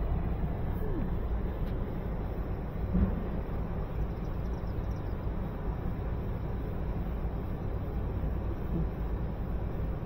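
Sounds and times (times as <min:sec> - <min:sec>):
low outdoor rumble: 0:00.0 - 0:10.0.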